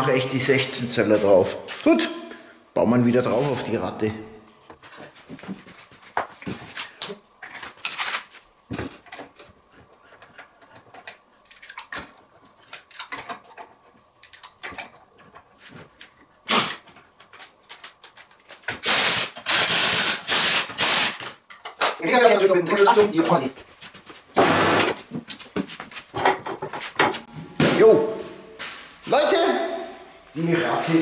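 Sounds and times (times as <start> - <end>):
power tool bursts: 18.8 - 21.4, 24.4 - 25.0.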